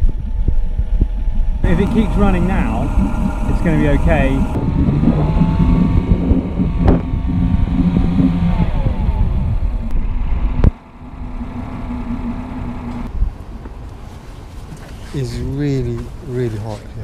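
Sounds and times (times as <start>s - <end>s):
outboard engine running: 1.6s - 13.1s.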